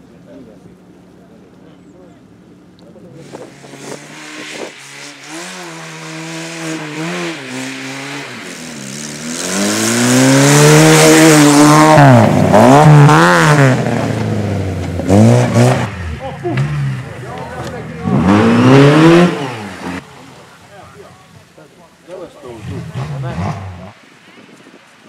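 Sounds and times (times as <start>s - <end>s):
rally car engine revving: 3.0s - 20.5s, 22.4s - 24.0s
second engine revving: 3.2s - 20.1s, 22.5s - 24.0s.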